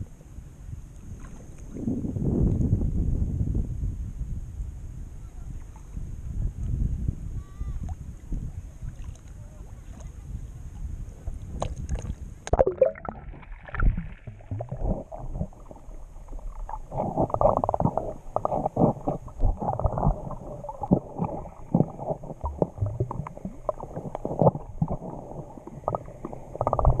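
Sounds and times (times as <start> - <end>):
muffled underwater gurgling: 7.4 - 27.0
seawater lapping: 7.8 - 27.0.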